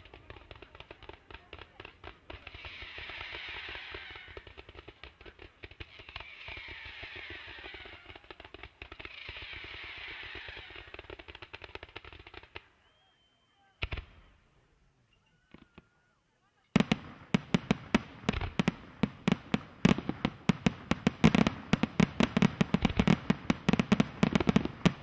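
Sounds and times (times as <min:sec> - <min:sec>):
firework volleys: 0:00.0 - 0:13.0, 0:16.8 - 0:25.0
dense hissing crackle: 0:01.5 - 0:11.6.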